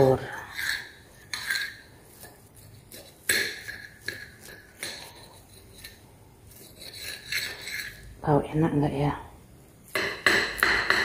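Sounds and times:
knife scraping ceramic plate: 0.0s - 8.2s.

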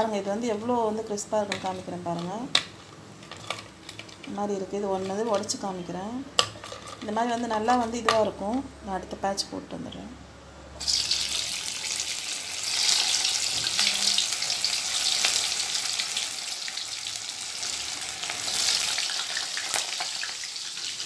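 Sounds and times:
hot oil sizzling and crackling: 10.8s - 21.0s.

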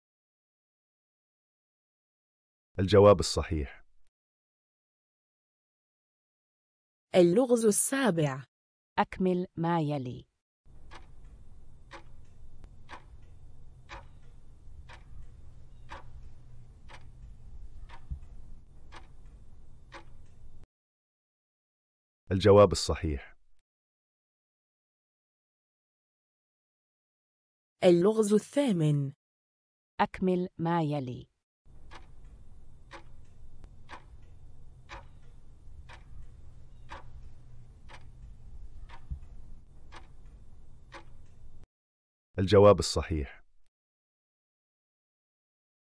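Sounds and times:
low steady hum: 10.7s - 20.6s, 31.7s - 41.6s
clock ticking: 10.7s - 20.7s, 31.7s - 41.7s.

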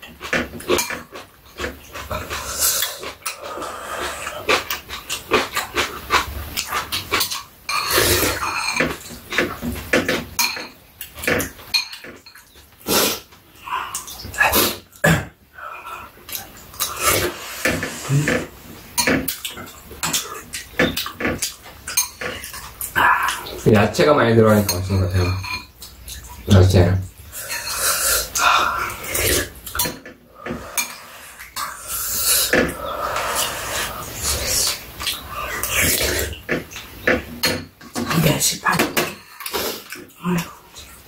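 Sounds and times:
slurping and chewing noodles: 0.0s - 10.0s, 15.9s - 23.6s, 27.3s - 37.0s, 39.3s - 41.0s.

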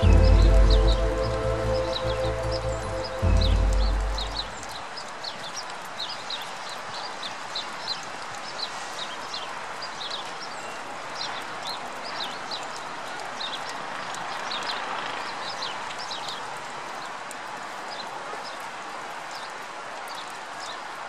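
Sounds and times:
steady hiss: 0.0s - 5.4s
water dripping plinks: 0.0s - 20.9s.

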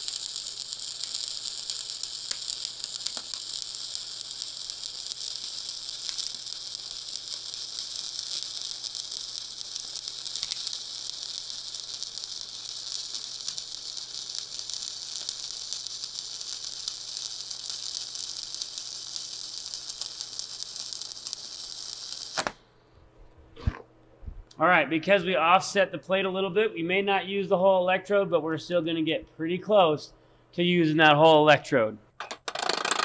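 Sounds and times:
welding crackling sizzle: 0.0s - 22.6s.

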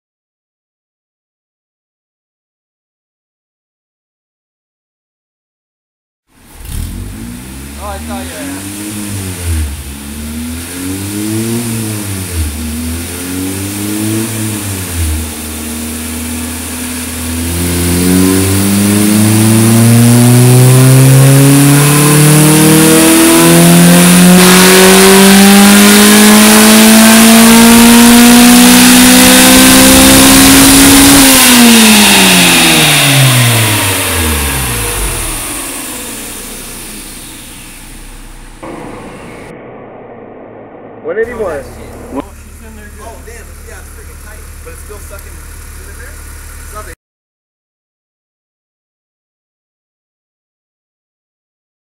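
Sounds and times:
car engine revving: 6.4s - 47.0s
dyno rollers winding down: 31.4s - 45.4s.

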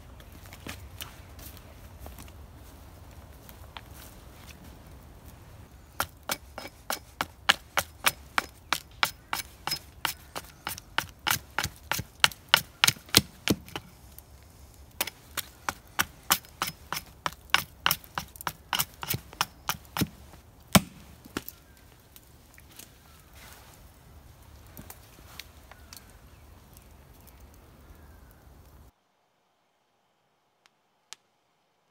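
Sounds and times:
axe chopping wood: 6.0s - 13.9s, 15.0s - 21.5s.

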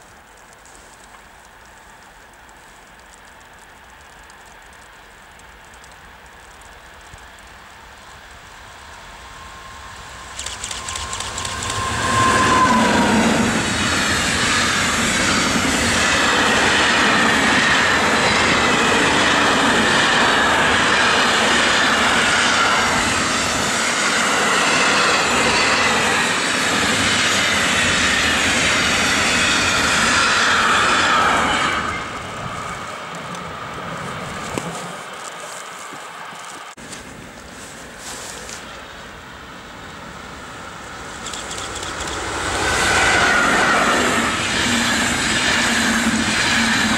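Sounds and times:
locomotive steady tone: 0.0s - 46.9s
freight train passing: 6.4s - 46.9s
high wheel squeal: 9.1s - 34.5s.

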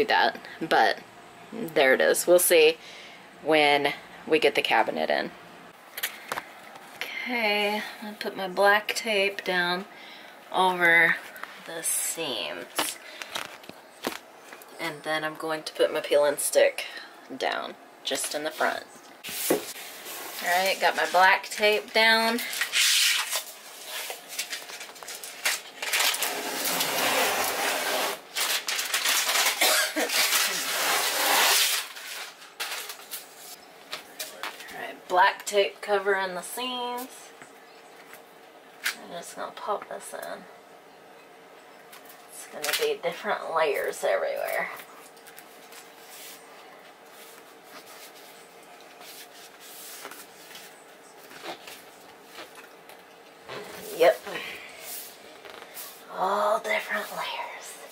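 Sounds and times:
hand rubbing tape on floor: 18.2s - 24.7s, 26.2s - 28.2s, 30.2s - 32.2s, 44.5s - 46.4s, 47.1s - 52.7s, 53.5s - 56.1s.

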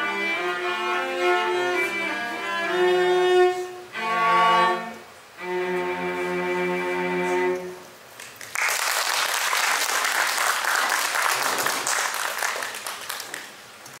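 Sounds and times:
cellos holding a chord: 0.0s - 8.0s
audience applauding: 8.2s - 13.7s.

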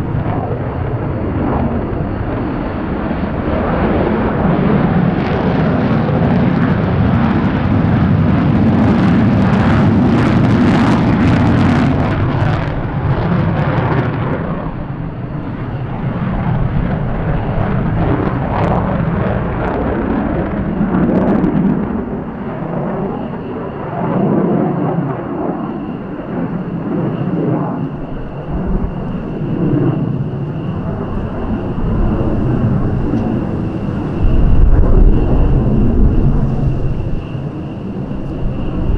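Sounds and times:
high whine: 0.0s - 38.9s
jet engines rumbling: 0.0s - 38.9s.

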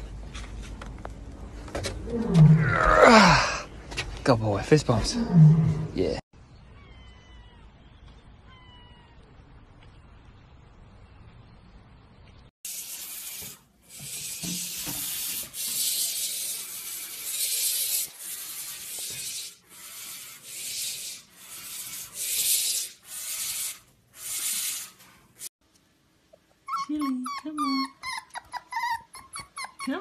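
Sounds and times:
barn owls hissing: 12.8s - 25.5s.

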